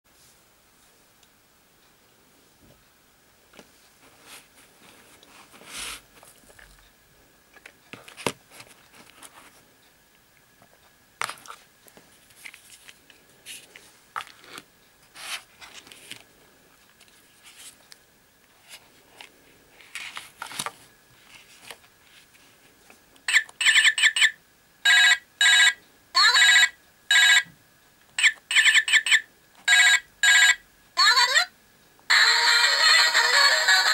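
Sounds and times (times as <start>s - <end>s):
toy phone electronic ringtone: 23.3s - 27.5s, 28.2s - 31.5s, 32.1s - 33.9s.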